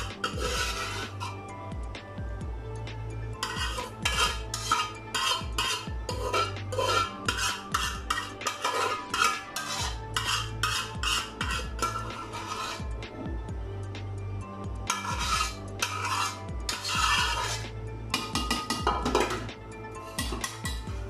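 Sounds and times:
metal spoon scraping steel pots: 0.0 - 1.6, 3.4 - 13.3, 14.8 - 21.0.

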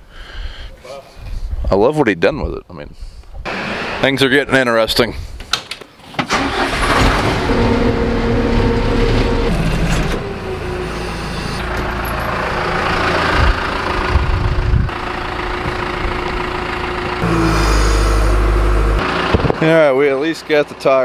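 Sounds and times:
diesel engine starting and running: 3.5 - 4.2, 6.2 - 21.0.

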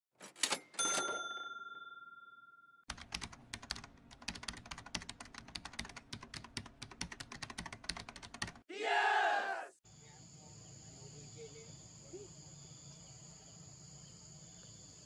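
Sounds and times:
bell-like ding ringing: 0.8 - 2.8
rapid keyboard typing clicks: 2.9 - 8.6.

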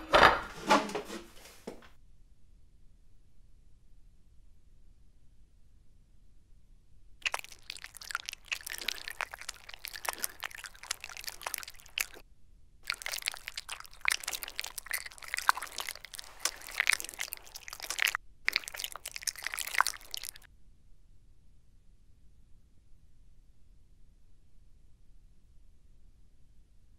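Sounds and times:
person chewing noisily: 7.2 - 12.2, 12.8 - 20.5.

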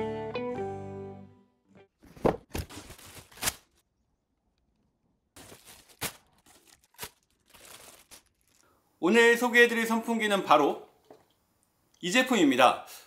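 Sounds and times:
plastic wrapping crinkling: 2.5 - 3.8, 5.4 - 8.7.

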